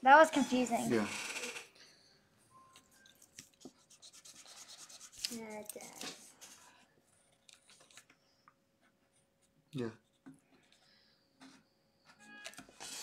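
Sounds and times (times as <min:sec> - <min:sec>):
pencil scratching on paper: 0:03.5 - 0:06.6.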